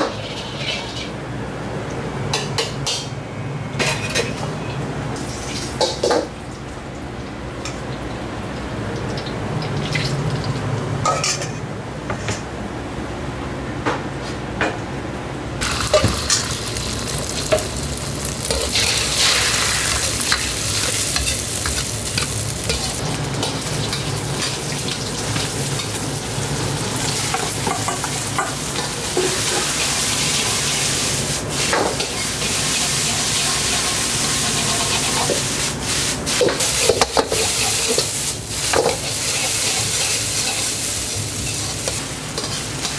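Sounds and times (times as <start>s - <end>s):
egg and rice sizzling in wok: 15.6s - 42.9s.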